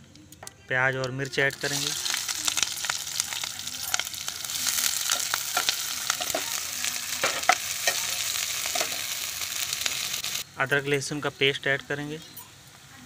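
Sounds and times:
onions sizzling in hot oil: 1.3s - 13.0s
spoon scraping a pan: 3.9s - 9.2s.

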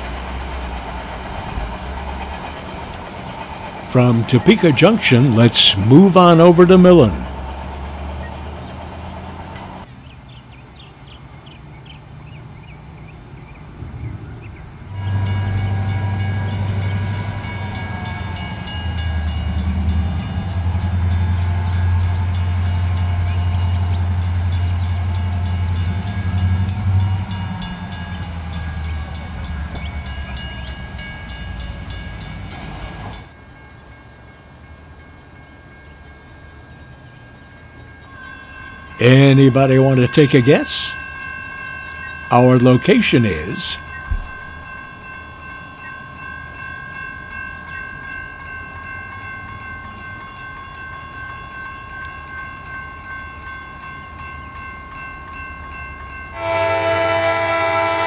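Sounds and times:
train wheels clicking: 0.0s - 9.9s, 15.0s - 33.4s, 38.9s - 46.0s
locomotive engine rumble: 0.0s - 58.0s.

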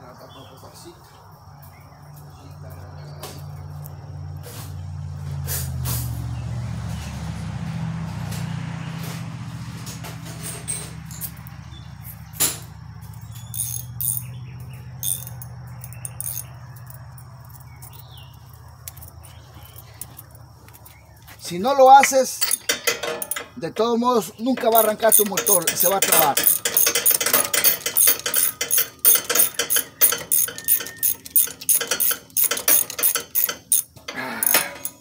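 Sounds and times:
low engine hum: 2.8s - 21.5s
faint bird chirp: 13.0s - 21.4s.

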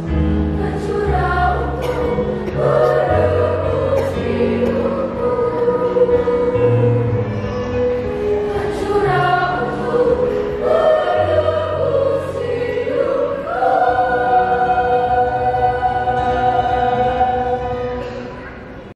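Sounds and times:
children's choir singing: 0.0s - 18.9s.

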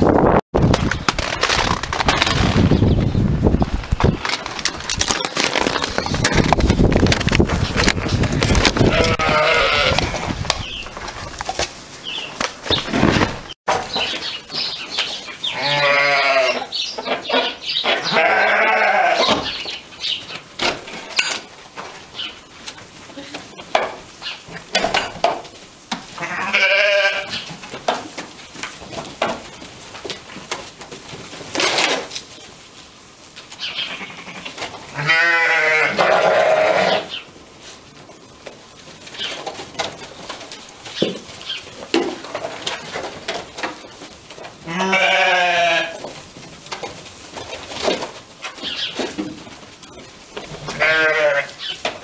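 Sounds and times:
sheep bleating: 15.5s - 16.7s, 17.9s - 19.3s, 26.2s - 27.3s, 33.9s - 37.1s, 44.6s - 46.0s, 50.6s - 51.6s
faint knocks and rustles: 37.6s - 50.9s.

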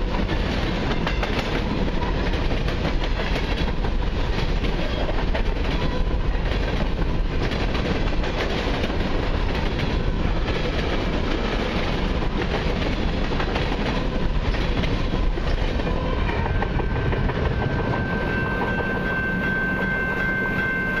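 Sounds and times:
train rumble: 0.0s - 21.0s
train wheels clacking on rail joints: 0.0s - 21.0s
high-pitched wheel squeal: 17.6s - 21.0s.

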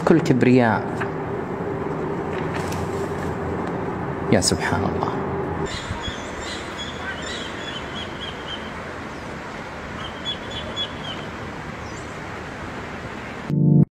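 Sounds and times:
outdoor background hiss: 0.0s - 13.5s
small birds chirping: 5.7s - 12.4s.

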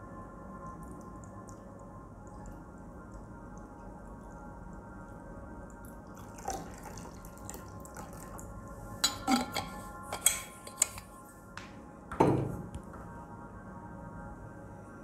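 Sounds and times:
water trickling onto a plate: 0.6s - 4.9s, 5.6s - 9.7s.

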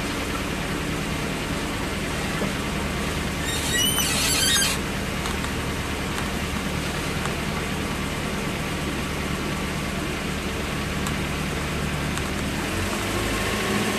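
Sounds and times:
motorboat engine running: 0.0s - 13.9s
wind: 0.0s - 13.9s
high squeak: 3.4s - 4.8s
water rushing from wake: 4.3s - 13.9s.

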